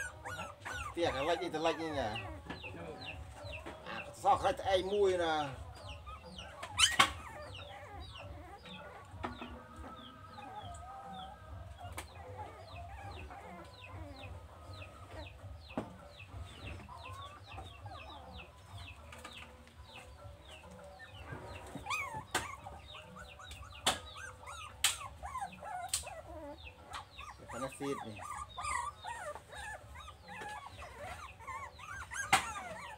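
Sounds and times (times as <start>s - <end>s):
chickens clucking and peeping: 0.0s - 32.9s.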